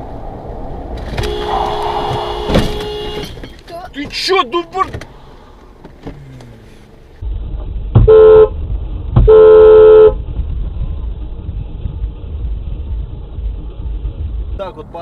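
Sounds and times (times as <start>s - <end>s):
moving vehicle rumble: 0.0s - 15.0s
car horn blasts: 1.1s - 3.6s, 8.0s - 8.5s, 9.2s - 10.2s.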